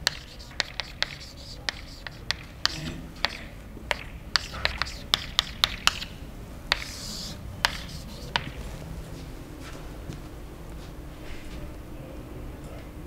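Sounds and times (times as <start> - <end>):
chalk scraping on blackboard: 0.0 - 6.1, 6.7 - 8.7
chalk tapping on blackboard: 0.0 - 8.7.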